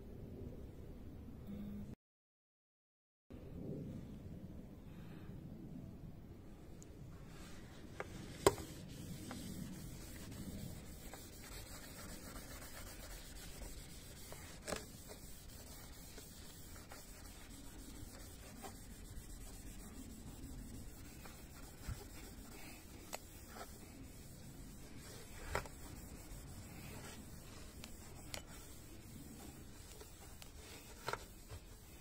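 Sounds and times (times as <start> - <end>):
wash mitt scrubbing: 8.1 - 32.0.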